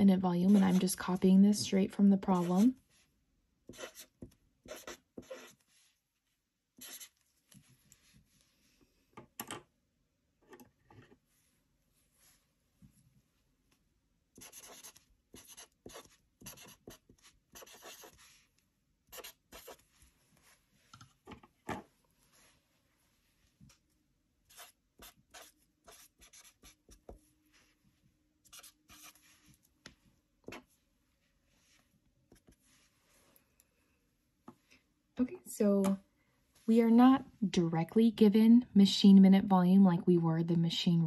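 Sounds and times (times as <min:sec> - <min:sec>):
pen scratching on paper: 0:00.4 - 0:02.8, 0:03.7 - 0:05.8, 0:06.8 - 0:07.2, 0:14.4 - 0:18.4, 0:19.1 - 0:19.9, 0:24.5 - 0:27.2, 0:28.5 - 0:29.4.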